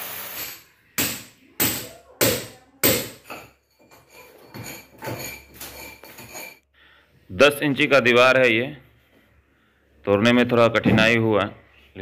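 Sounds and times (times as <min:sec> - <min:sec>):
hammer striking masonry wall: 0:01.0 - 0:03.5.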